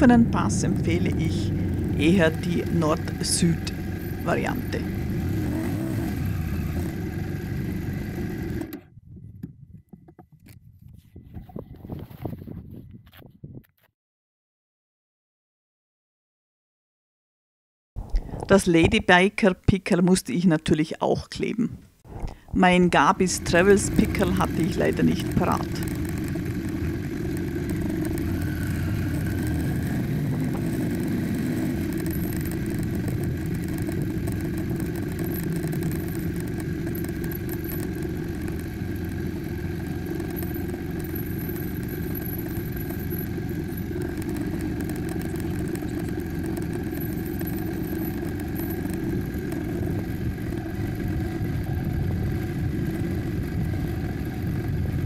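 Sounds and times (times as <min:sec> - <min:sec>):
motorcycle engine running: 0:00.0 - 0:09.0, 0:23.0 - 0:55.0.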